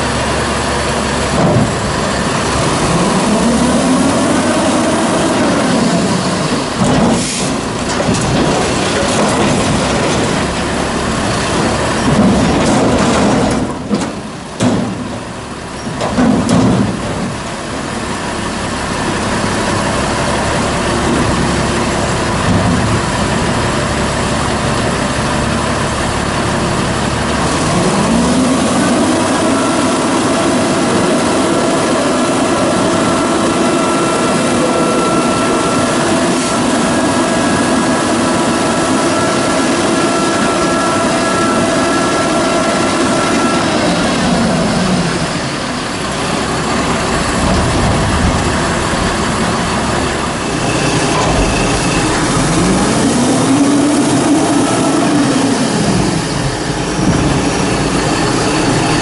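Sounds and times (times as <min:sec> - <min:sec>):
garbage truck diesel engine: 0:00.0 - 0:59.0
dumpster container knocking: 0:01.3 - 0:01.9, 0:06.6 - 0:17.5, 0:22.3 - 0:23.4, 0:46.6 - 0:53.0.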